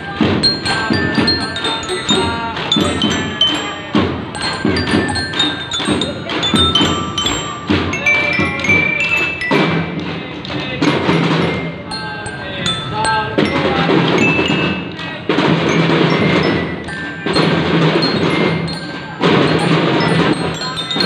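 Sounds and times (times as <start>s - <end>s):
glockenspiels ringing: 0.0s - 10.1s, 10.8s - 21.0s
snare drums beating: 0.0s - 21.0s.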